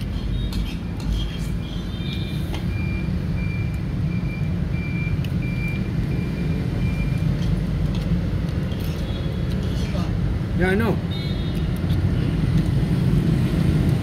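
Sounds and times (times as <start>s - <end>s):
reversing alarm beeping: 1.9s - 7.3s.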